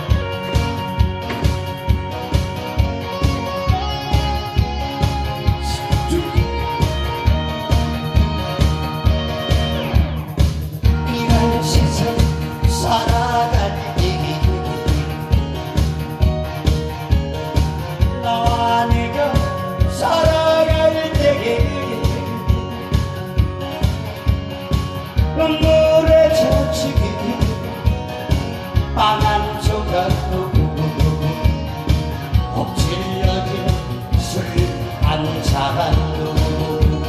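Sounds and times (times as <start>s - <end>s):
amplified backing track with beat: 0.0s - 37.0s
man singing into a microphone: 4.6s - 7.2s, 10.9s - 15.7s, 18.0s - 23.2s, 25.2s - 37.0s.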